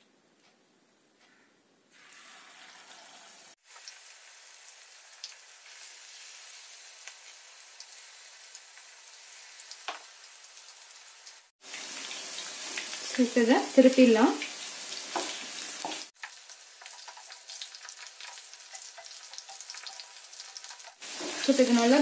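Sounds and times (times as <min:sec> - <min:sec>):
chicken sizzling in hot oil: 0:01.9 - 0:22.0
oil crackling and popping: 0:03.6 - 0:13.2, 0:14.4 - 0:22.0.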